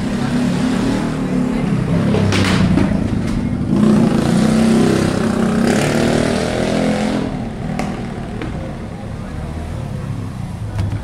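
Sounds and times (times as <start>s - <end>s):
vehicle engine revving: 0.0s - 11.0s.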